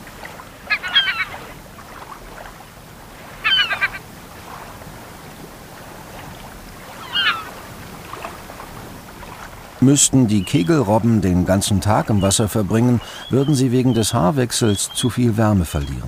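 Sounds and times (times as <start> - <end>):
gulls calling harshly: 0.0 - 16.0.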